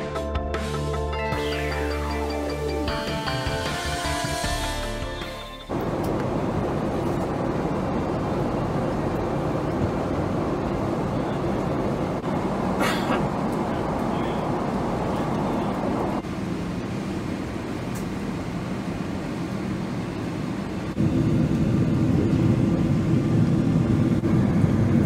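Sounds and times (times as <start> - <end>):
background music: 0.0 - 5.8
airliner cabin noise: 3.3 - 25.0.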